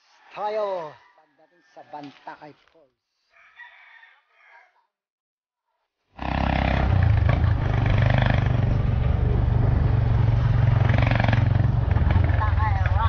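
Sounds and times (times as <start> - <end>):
motorcycle engine running: 6.2 - 13.0.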